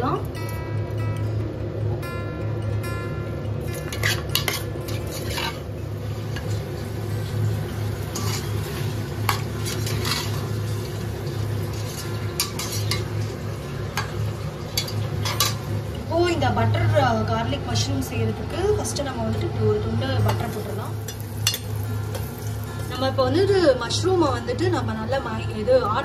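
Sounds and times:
spatula scraping steel pot: 3.8 - 5.6, 8.1 - 8.6, 9.3 - 10.4.

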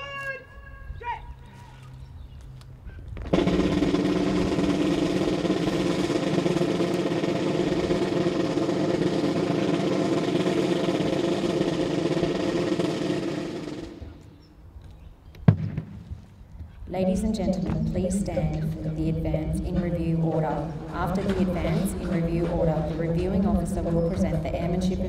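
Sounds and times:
military band holding a chord: 3.3 - 14.0, 17.2 - 25.0
drum roll: 3.3 - 14.2, 17.0 - 25.0.

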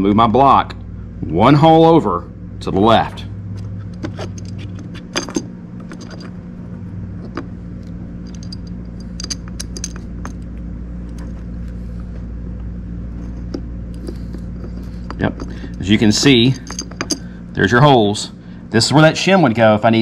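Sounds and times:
steady low hum: 0.0 - 20.0
light metallic clicks and clinks: 8.2 - 10.5, 14.8 - 17.3.

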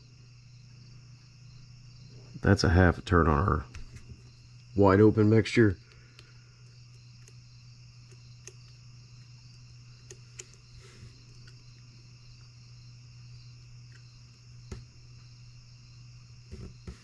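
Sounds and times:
steady low hum: 0.0 - 17.0
screwdriver light clicks: 6.9 - 7.4, 8.0 - 8.8.

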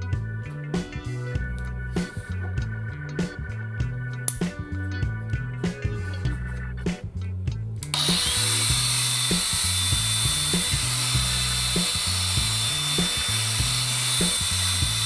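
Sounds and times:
angle grinder whining: 7.8 - 15.0.

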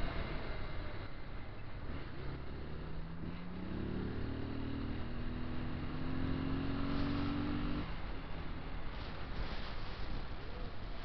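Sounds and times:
wind and road noise: 0.0 - 11.0
motorcycle engine accelerating: 1.8 - 7.9.

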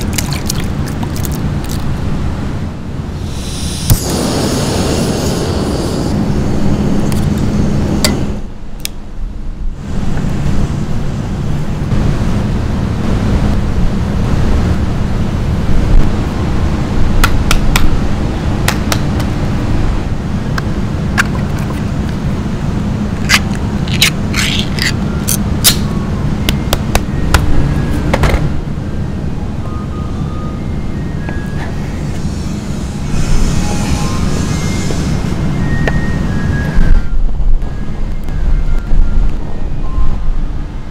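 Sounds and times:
steady low rumble: 0.0 - 40.9
tin can lid peeled open: 23.2 - 25.0.

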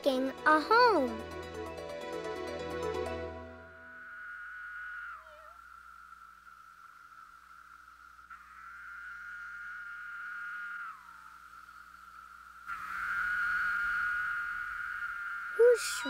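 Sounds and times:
cicada buzzing: 3.6 - 16.0.

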